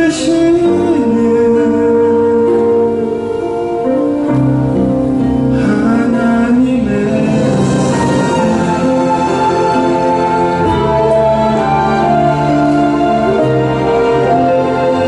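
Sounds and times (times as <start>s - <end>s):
man singing gospel song: 0.0s - 2.8s, 5.5s - 10.2s
instrumental accompaniment: 0.0s - 15.0s.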